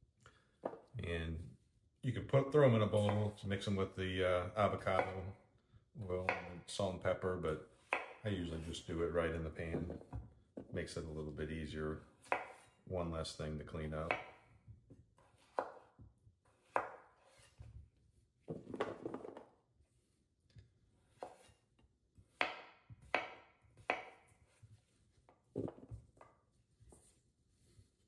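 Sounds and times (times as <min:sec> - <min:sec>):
knife cutting potatoes on wooden board: 0:07.7 - 0:08.8, 0:12.1 - 0:12.8, 0:14.0 - 0:17.9, 0:20.6 - 0:26.2.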